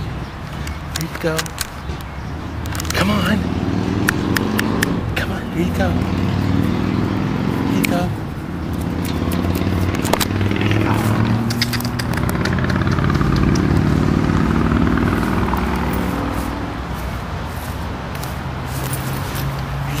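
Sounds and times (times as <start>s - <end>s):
sharp clicks: 0.5s - 3.3s, 4.0s - 5.0s, 8.7s - 13.9s
vehicle engine running: 2.5s - 20.0s.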